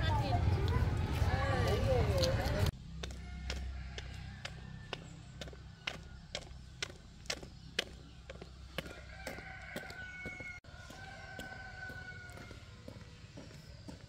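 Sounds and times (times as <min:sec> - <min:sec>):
footsteps on concrete: 0:00.6 - 0:14.0
rooster crowing: 0:03.1 - 0:05.1, 0:08.8 - 0:13.0.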